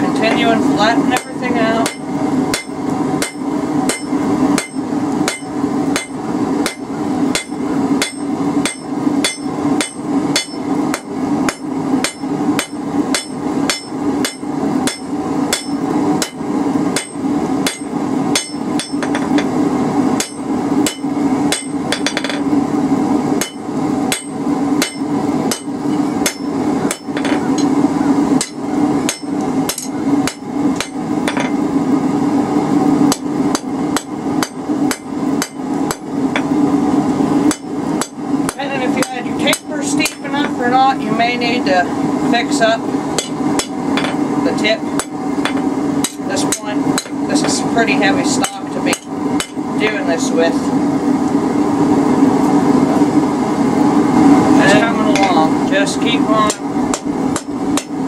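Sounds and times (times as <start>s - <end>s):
hammer striking hot steel: 1.1s - 19.6s, 20.2s - 22.6s, 23.4s - 27.8s, 28.4s - 31.6s, 33.1s - 36.6s, 37.4s - 40.6s, 43.2s - 44.2s, 44.9s - 47.6s, 48.4s - 50.0s, 54.7s - 55.5s, 56.4s - 58.0s.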